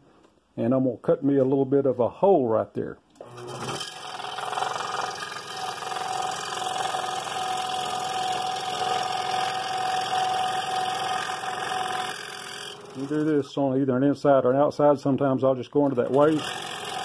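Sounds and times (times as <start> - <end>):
scroll saw buzzing: 3.1 - 13.6, 15.8 - 17.0.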